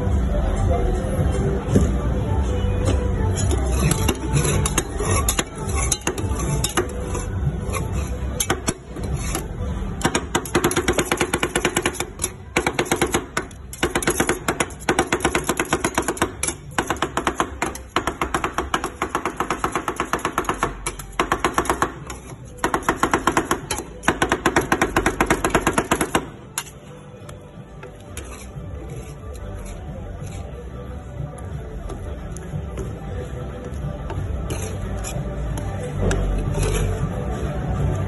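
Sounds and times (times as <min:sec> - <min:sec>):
metal spatulas clacking on steel: 0:03.4 - 0:26.8.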